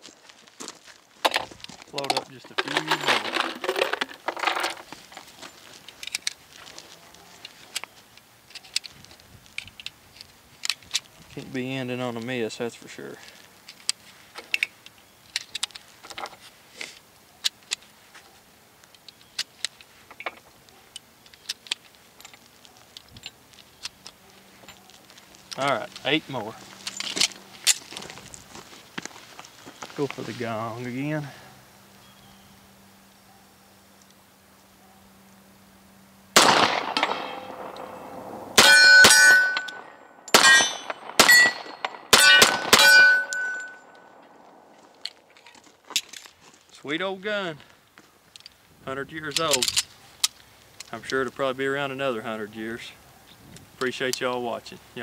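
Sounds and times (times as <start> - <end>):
brass cartridges clattering: 1.3 - 6.4, 19.0 - 27.9, 36.4 - 46.4
pistol shots: 36.4 - 43.6
steel targets ringing: 36.4 - 44.0.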